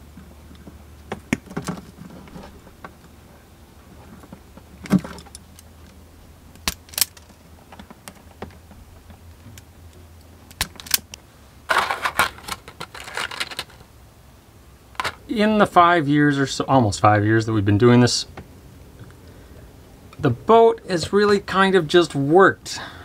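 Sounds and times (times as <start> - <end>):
small hard parts rattling: 3.9 - 9.7, 10.5 - 13.9, 15.0 - 15.3
wire stripper snapping and clicking: 6.5 - 8.6, 10.5 - 11.2.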